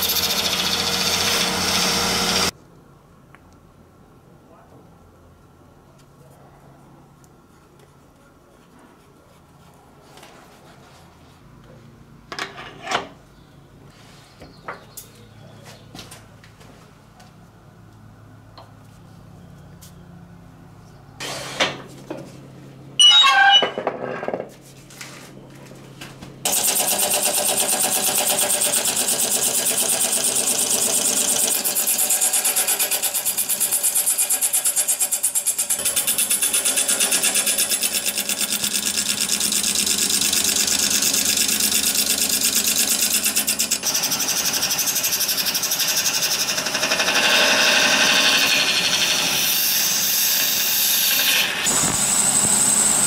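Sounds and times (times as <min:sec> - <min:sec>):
loud power tool running: 0:00.0 - 0:02.5, 0:26.5 - 0:53.0.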